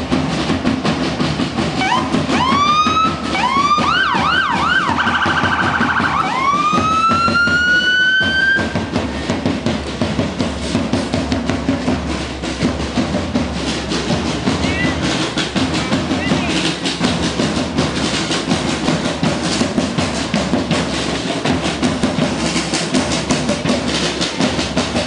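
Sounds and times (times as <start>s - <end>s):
drums beating: 0.0s - 25.0s
emergency vehicle siren: 1.8s - 8.8s.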